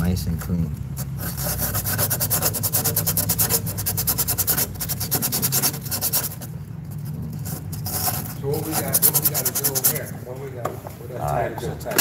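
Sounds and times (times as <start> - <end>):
steady low hum: 0.0 - 12.0
sandpaper rubbing on metal tube: 1.0 - 10.2.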